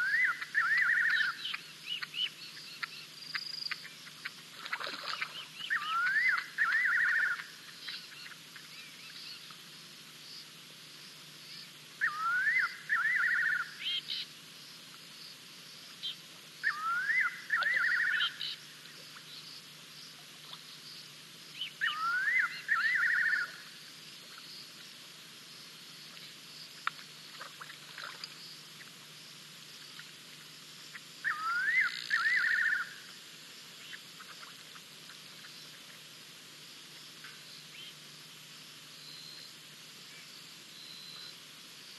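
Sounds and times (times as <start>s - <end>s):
bird whistling call: 0.0s - 2.3s, 5.6s - 8.0s, 12.0s - 14.2s, 16.0s - 18.6s, 21.6s - 23.6s, 31.2s - 33.0s
faint high hiss: 0.0s - 41.9s.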